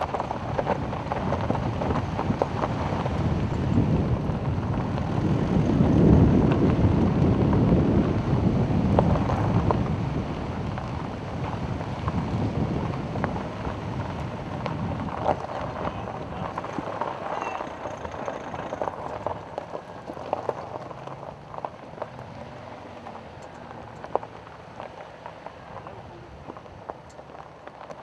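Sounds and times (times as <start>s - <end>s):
wind buffeting microphone: 0.0s - 22.1s
off-road vehicle driving on gravel: 0.0s - 28.0s
small clicks and rattles: 15.2s - 22.1s.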